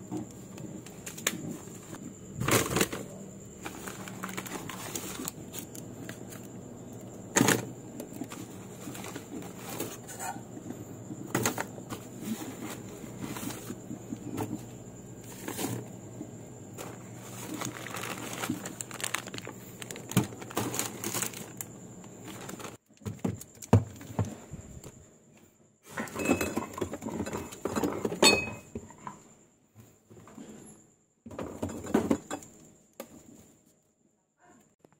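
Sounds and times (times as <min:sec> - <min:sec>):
plastic packaging crinkling: 0:03.6 - 0:06.5, 0:16.8 - 0:22.8
items knocking on shelves: 0:16.8 - 0:21.4, 0:22.3 - 0:24.5.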